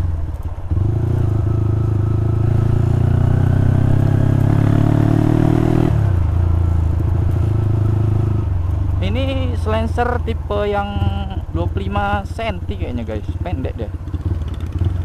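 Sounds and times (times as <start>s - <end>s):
motorcycle engine accelerating: 0.0s - 15.0s.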